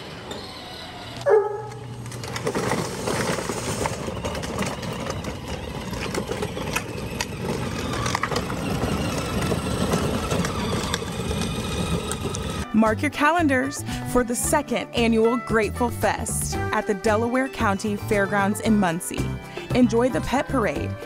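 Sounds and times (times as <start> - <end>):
plastic wheels rolling on asphalt: 0.0 - 12.7.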